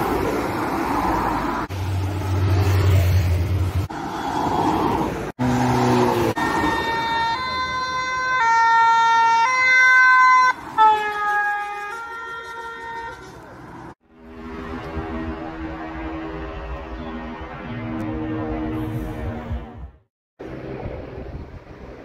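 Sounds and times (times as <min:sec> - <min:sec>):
vehicles passing on road: 0:00.0 - 0:22.0
two-tone emergency siren: 0:06.2 - 0:13.2.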